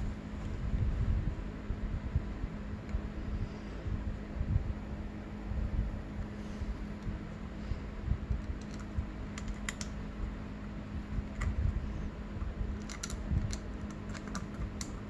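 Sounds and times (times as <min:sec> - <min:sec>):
steady low hum: 0:00.0 - 0:15.0
metallic clicks and ticks: 0:08.3 - 0:10.0, 0:12.8 - 0:15.0.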